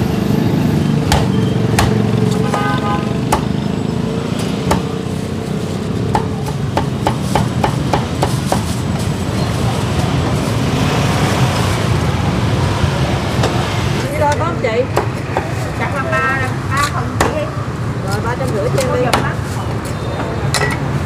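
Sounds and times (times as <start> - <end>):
cleaver chopping on wooden block: 1.1 - 2.5, 3.3 - 3.5.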